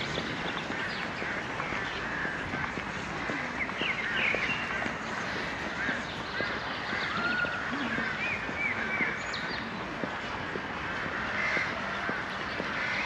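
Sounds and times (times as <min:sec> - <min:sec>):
many birds calling: 0:00.0 - 0:13.0.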